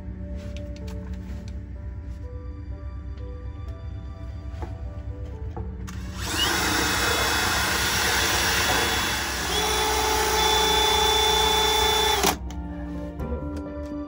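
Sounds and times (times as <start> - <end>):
cordless drill whining: 5.9 - 12.4.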